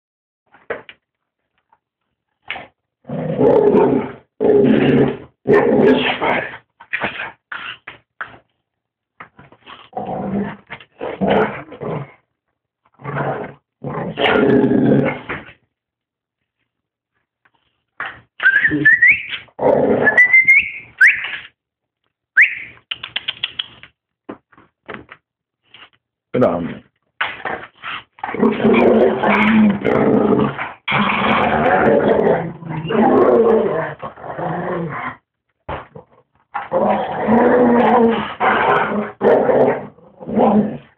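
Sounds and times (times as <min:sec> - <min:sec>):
dog growling: 0:03.0 - 0:06.6, 0:27.4 - 0:35.2, 0:35.8 - 0:40.9
dog whining: 0:18.4 - 0:21.5.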